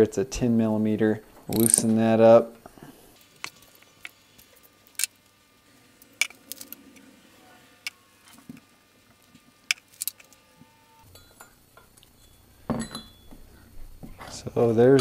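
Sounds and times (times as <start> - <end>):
metal tool and bolts clinking: 1.5 - 2.0, 9.7 - 10.4, 11.0 - 13.4.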